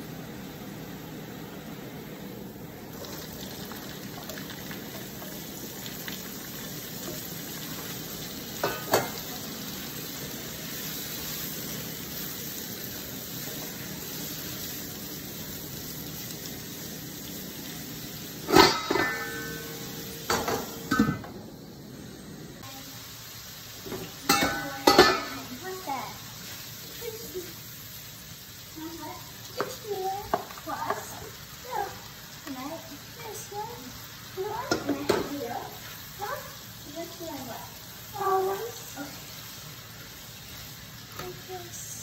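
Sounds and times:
vegetables sizzling in oil: 0.0s - 42.0s
metal lid clanking: 8.6s - 9.2s, 18.4s - 21.4s, 23.9s - 25.4s.

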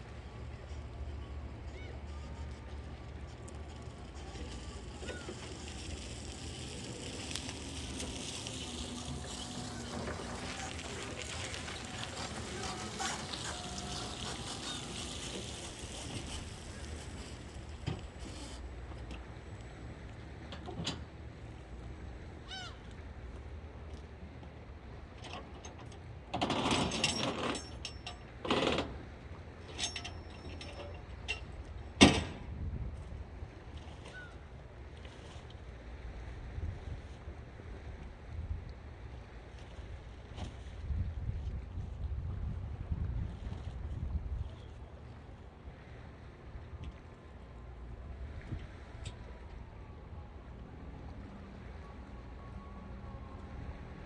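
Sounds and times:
rough scraping creaking: 1.6s - 19.0s
sea washing at shoreline: 2.5s - 20.5s
wind rumble on microphone: 30.6s - 34.6s, 35.2s - 52.0s.

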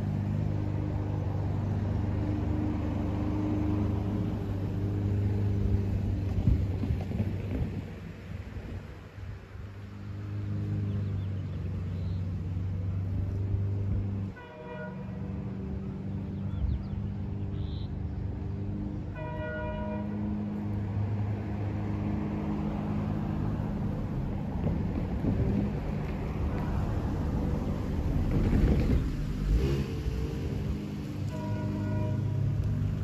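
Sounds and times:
diesel locomotive engine drone: 0.0s - 33.0s
train horn blasts: 14.3s - 15.5s, 19.1s - 20.5s, 31.2s - 32.6s.

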